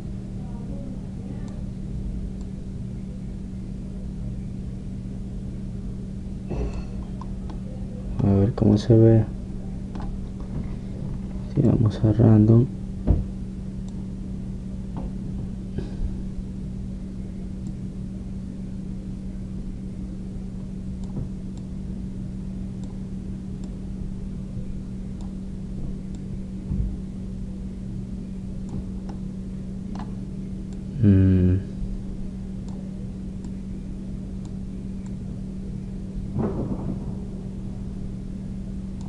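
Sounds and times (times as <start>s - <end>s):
electrical hum: 0.0s - 39.0s
soft thump: 13.0s - 13.3s, 36.4s - 37.2s.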